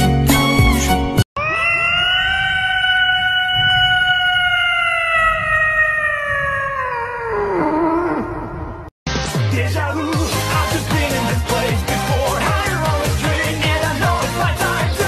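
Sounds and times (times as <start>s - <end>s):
cat yowling: 1.4s - 8.0s.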